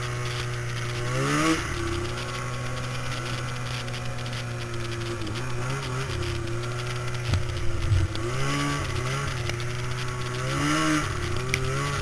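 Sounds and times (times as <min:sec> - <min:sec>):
snowmobile engine running: 0:00.0 - 0:12.0.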